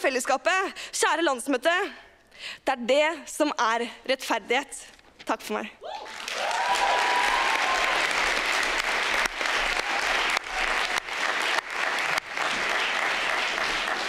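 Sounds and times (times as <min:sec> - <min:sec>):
audience applause: 0:06.0 - 0:14.0.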